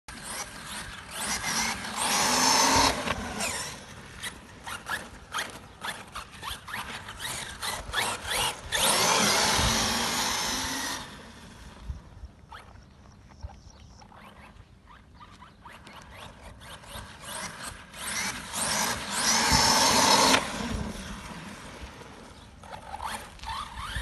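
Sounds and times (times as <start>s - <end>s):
rc car motor whining: 0.1s - 11.8s, 14.1s - 24.0s.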